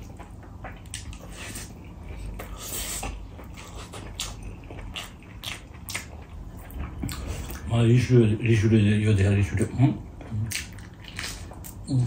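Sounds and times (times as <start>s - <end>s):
chewing and mouth smacking: 0.0s - 7.7s, 10.1s - 12.0s.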